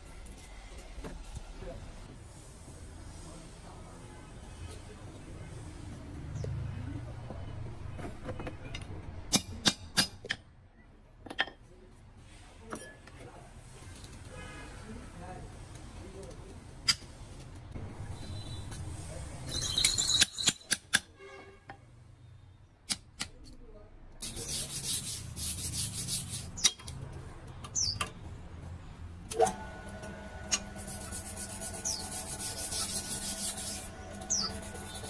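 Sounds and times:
rasping rubbing noise: 24.2 - 26.7, 30.4 - 35.0.

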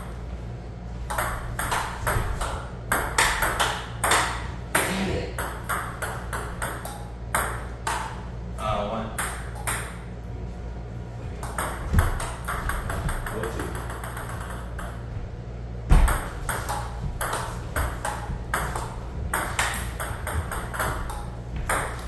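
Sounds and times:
table tennis ball clicking: 11.4 - 15.0, 16.1 - 22.0.

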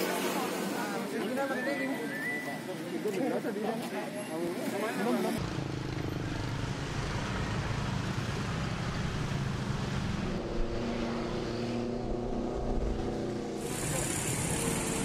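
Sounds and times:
motor scooters passing: 5.3 - 15.0
scooter engine steady tone: 13.6 - 15.0.

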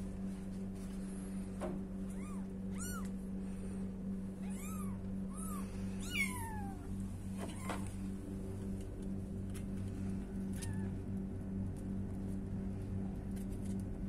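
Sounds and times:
low hum: 0.0 - 14.0
kitten mewing: 2.1 - 3.2, 4.4 - 7.9.

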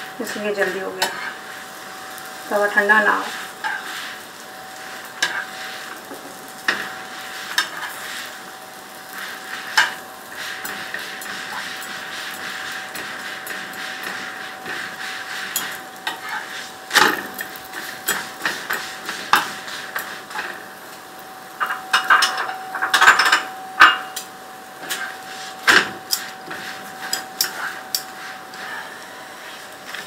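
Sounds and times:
bread sizzling on a griddle: 0.0 - 30.0
metal tongs clicking and scraping: 27.0 - 28.1.

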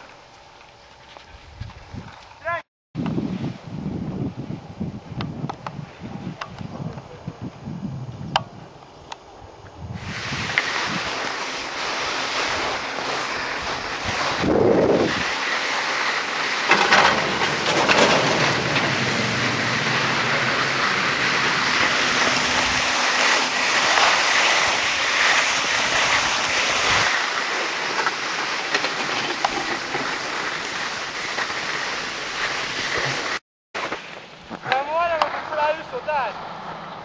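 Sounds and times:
wind noise on microphone: 1.2 - 16.1, 16.7 - 27.2.

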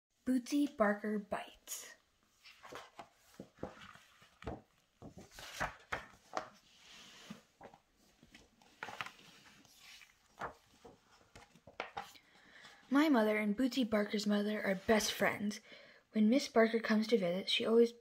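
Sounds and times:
paper pages rustling: 2.3 - 12.8.

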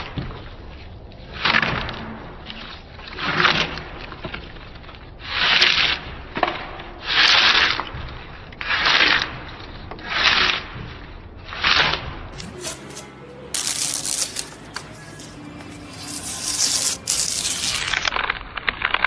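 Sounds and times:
drawknife rasping bark off wood: 12.4 - 18.1.

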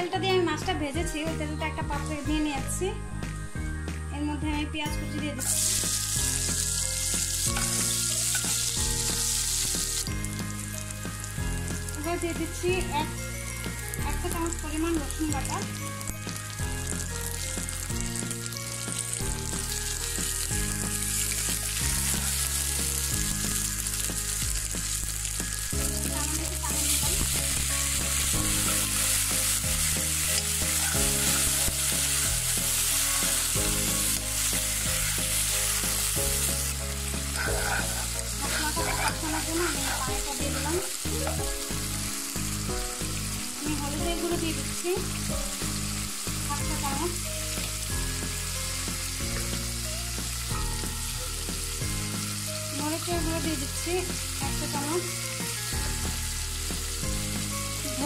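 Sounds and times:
onion sizzling in hot oil: 5.0 - 58.0
spatula stirring: 26.8 - 36.2, 37.3 - 41.4.

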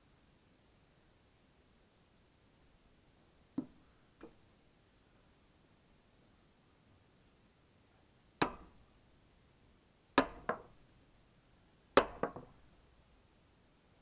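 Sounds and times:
hammer striking steel wedge: 8.4 - 8.8, 10.2 - 10.7, 12.0 - 12.5.

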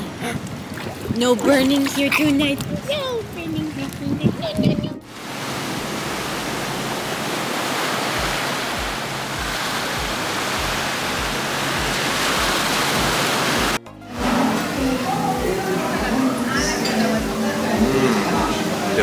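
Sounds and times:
steady rushing noise: 1.3 - 16.2.

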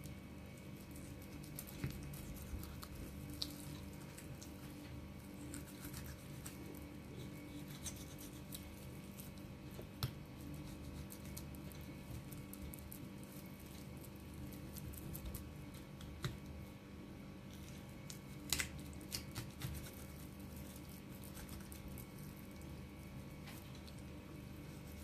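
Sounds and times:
knife squishing through raw meat: 0.0 - 16.6, 17.4 - 25.0
low room hum: 0.0 - 25.0.

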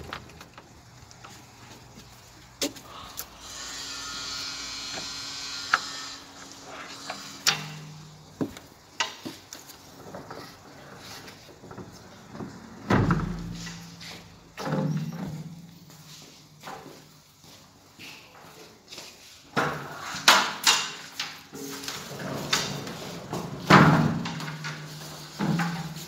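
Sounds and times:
panels clicking and knocking: 7.0 - 15.8, 19.6 - 26.0.

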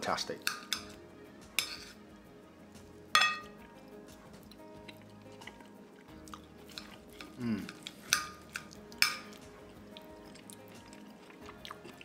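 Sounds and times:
soft background music: 0.0 - 12.0
cutlery scraping ceramic plate: 1.6 - 2.0.

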